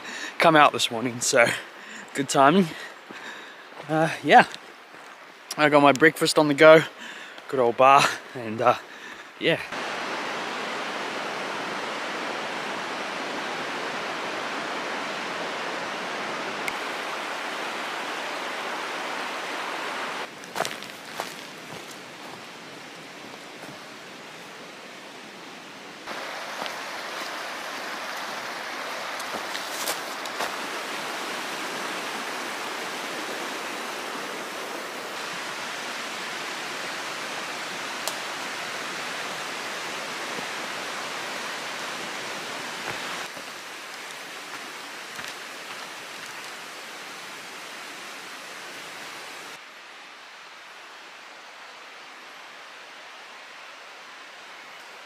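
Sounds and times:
stream rushing: 0:00.0 - 0:55.0.

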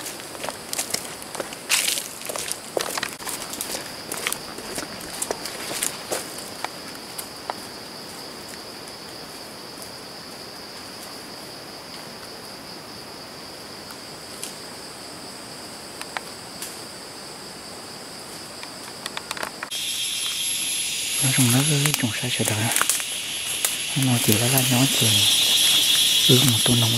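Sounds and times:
footsteps on leaf litter: 0:00.0 - 0:06.9, 0:21.2 - 0:26.9
insects droning: 0:00.0 - 0:26.9.

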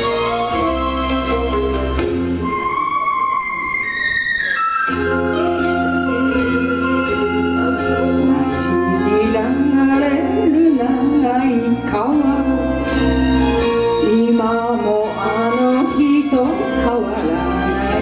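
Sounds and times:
karaoke ballad backing track: 0:00.0 - 0:03.4, 0:04.8 - 0:18.0
woman singing: 0:08.2 - 0:12.8, 0:14.0 - 0:18.0.

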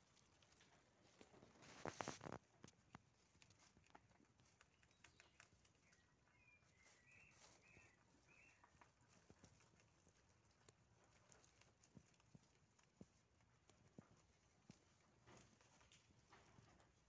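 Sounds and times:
rabbits chewing grass: 0:00.0 - 0:17.0
faint high chirps: 0:04.6 - 0:08.9.

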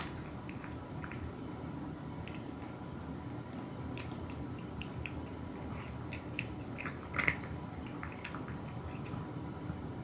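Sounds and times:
cat crunching dry kibble: 0:04.0 - 0:09.2.

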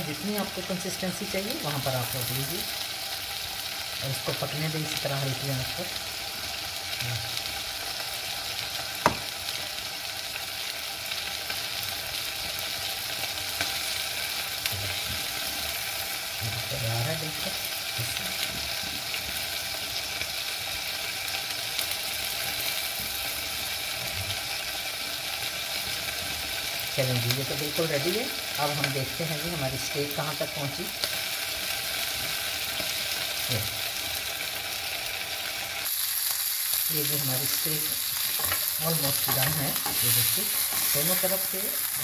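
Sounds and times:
sharp tap: 0:09.0 - 0:09.3.

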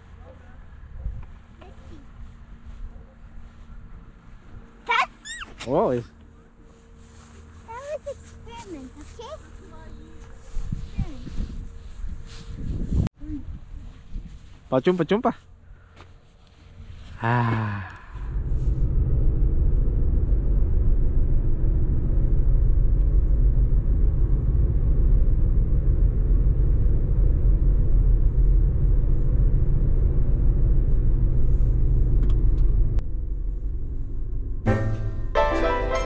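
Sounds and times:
low vehicle rumble: 0:15.5 - 0:35.5.

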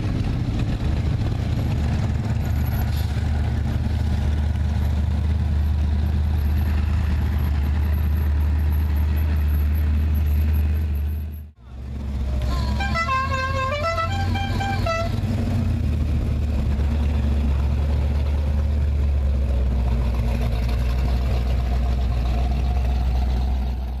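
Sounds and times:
low engine rumble: 0:00.0 - 0:24.0
musical vehicle horn tune: 0:12.4 - 0:15.2.

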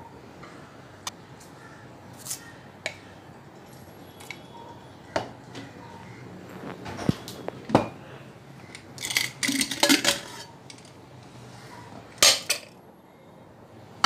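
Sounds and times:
metal cookware clattering: 0:09.0 - 0:10.9, 0:12.2 - 0:12.7.

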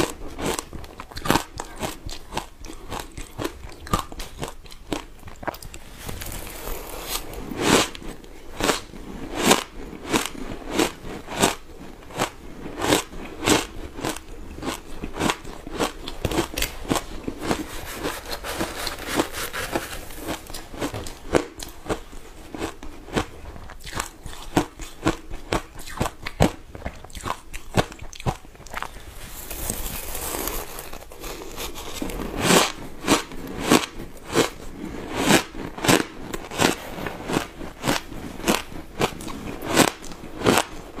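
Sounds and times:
shaved ice crunching: 0:29.3 - 0:32.6.

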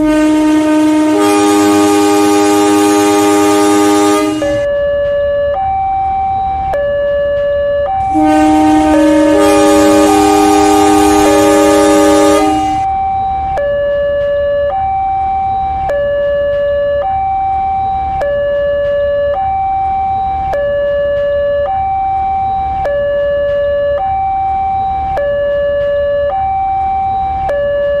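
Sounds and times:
loud horn: 0:00.0 - 0:04.7, 0:08.0 - 0:12.9
two-tone hi-lo siren: 0:00.0 - 0:28.0.

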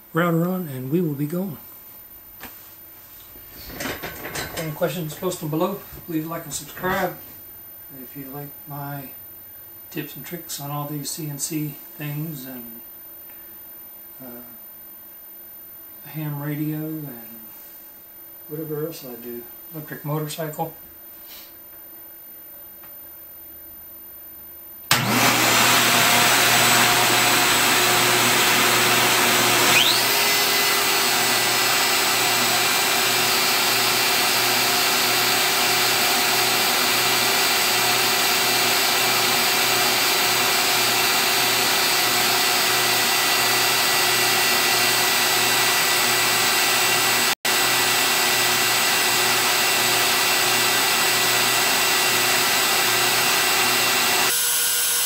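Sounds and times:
dust vacuum running: 0:24.9 - 0:55.0
router whining: 0:24.9 - 0:55.0.

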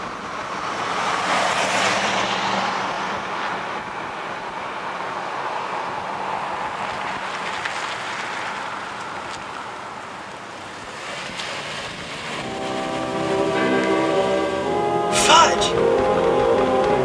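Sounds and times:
vehicle engine and road noise: 0:00.0 - 0:17.0
music of sustained notes: 0:12.4 - 0:17.0.

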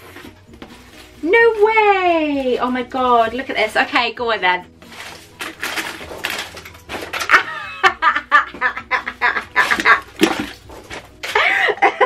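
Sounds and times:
hands rummaging through packing fill: 0:04.8 - 0:07.6, 0:09.4 - 0:11.7
woman laughing: 0:07.3 - 0:10.2, 0:11.2 - 0:12.0.

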